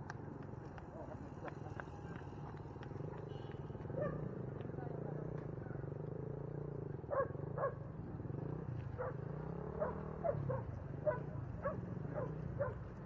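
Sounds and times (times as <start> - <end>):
dog barking: 4.0 - 4.2, 7.1 - 7.8, 9.0 - 12.9.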